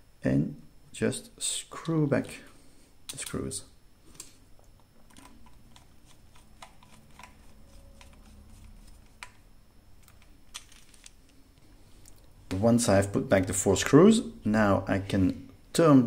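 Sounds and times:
screwdriver clicking on plastic: 5.1s - 9.4s.

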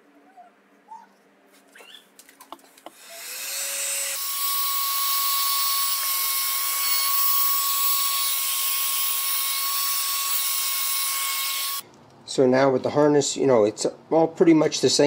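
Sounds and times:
heat gun whining: 2.9s - 11.8s.

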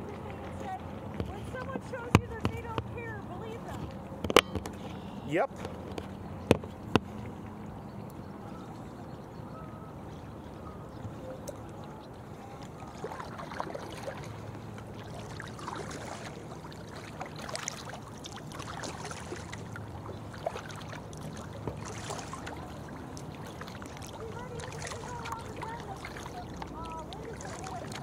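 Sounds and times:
paddle pulling through water: 0.0s - 28.0s
water trickling along hull: 0.0s - 28.0s
water dripping and splashing: 11.0s - 28.0s.

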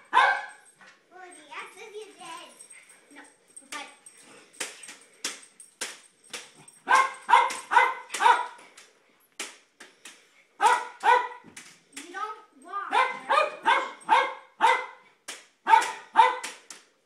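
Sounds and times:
dog barking: 0.0s - 0.7s, 6.8s - 8.6s, 10.6s - 11.5s, 12.9s - 15.0s, 15.6s - 16.6s.

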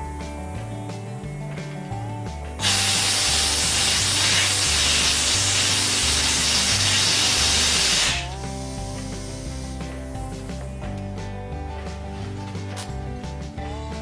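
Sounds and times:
background music with bass: 0.0s - 14.0s
air blow gun hissing: 2.6s - 10.6s.

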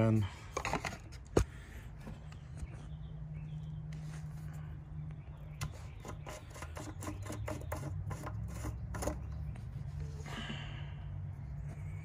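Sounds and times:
oil filter clicking and scraping: 0.4s - 2.8s, 5.5s - 10.6s.

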